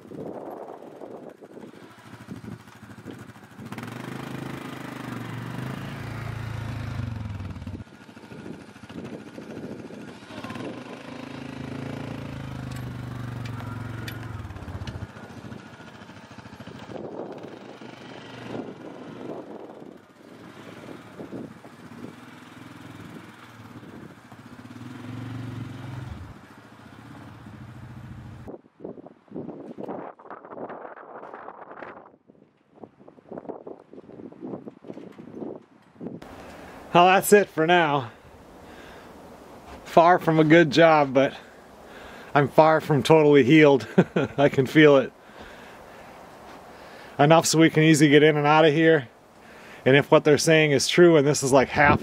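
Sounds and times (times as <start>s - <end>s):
atv engine revving: 0.0s - 28.5s.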